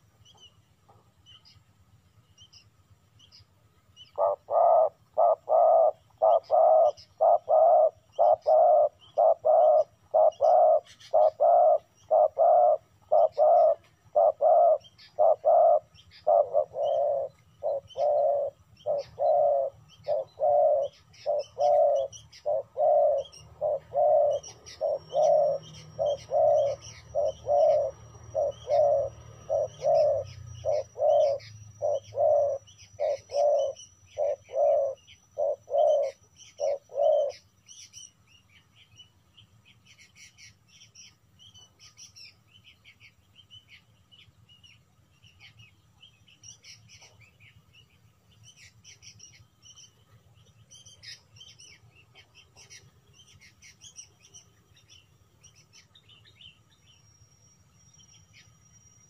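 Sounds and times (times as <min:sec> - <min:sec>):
faint high bird chirps: 0:00.0 - 0:59.0
dove cooing: 0:04.0 - 0:38.1.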